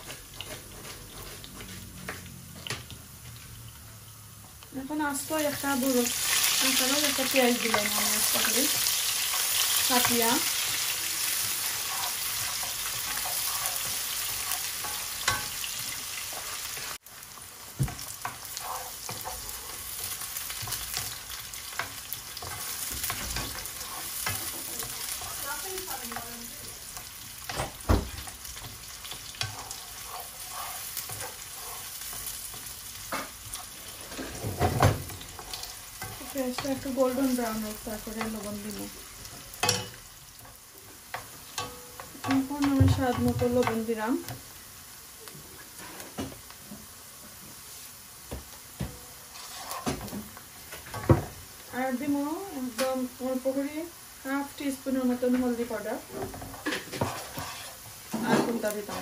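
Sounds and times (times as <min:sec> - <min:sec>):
onions sizzling in oil: 0:00.0 - 0:59.0
wooden spatula knocking pan: 0:41.6 - 0:44.0.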